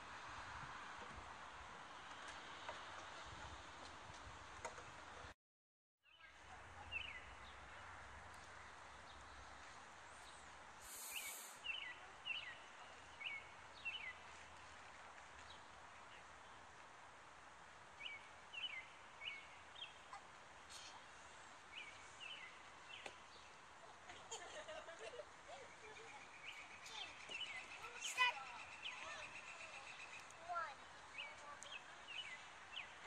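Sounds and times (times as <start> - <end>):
outdoor background noise: 0.0 - 5.4, 6.0 - 33.0
small bird chirping: 10.2 - 14.1
brief hiss: 10.8 - 11.8.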